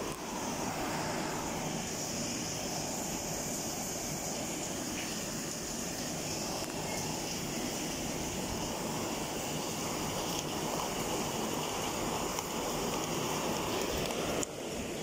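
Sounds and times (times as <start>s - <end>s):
rain pouring: 0.0s - 15.0s.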